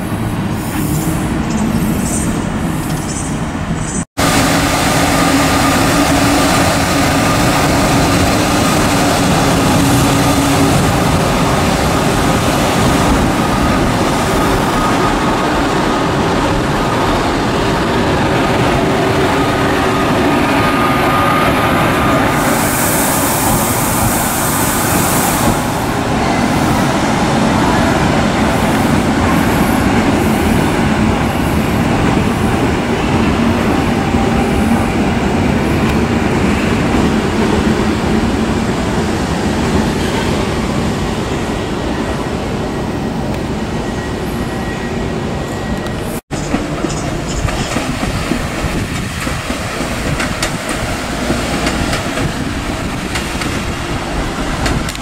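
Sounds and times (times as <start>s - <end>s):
train wheels rumbling on rails: 0.0s - 55.0s
high hiss: 22.4s - 25.9s.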